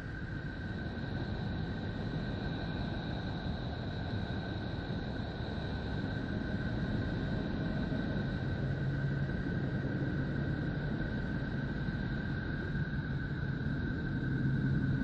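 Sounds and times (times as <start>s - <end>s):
rumbling hiss: 0.0s - 15.0s.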